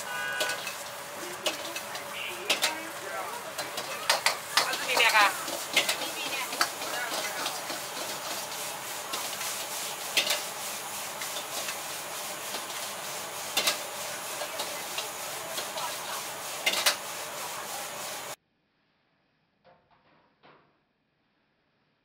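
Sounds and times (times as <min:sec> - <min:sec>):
food sizzling in a wok: 0:00.0 - 0:18.4
gas burner hiss: 0:00.0 - 0:18.4
metal ladle clanging on wok: 0:00.4 - 0:09.3.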